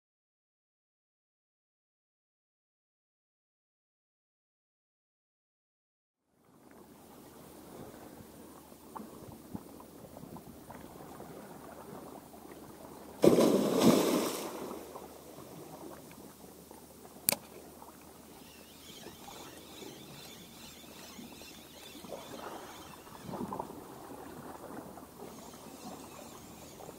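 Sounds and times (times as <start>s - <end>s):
water lapping: 6.5s - 26.9s
fish splashing in water: 13.2s - 16.0s, 17.5s - 26.9s
sharp click: 17.3s - 17.6s.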